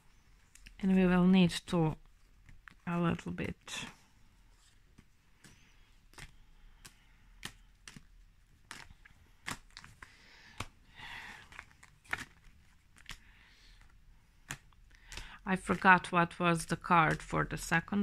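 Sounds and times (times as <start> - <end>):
cards sliding rustle: 4.0 - 15.9
cards clicking together: 5.0 - 10.8, 11.4 - 15.9.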